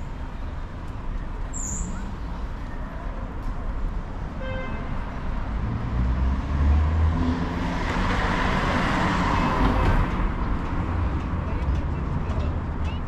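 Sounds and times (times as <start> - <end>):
vehicle passing: 5.4 - 12.2.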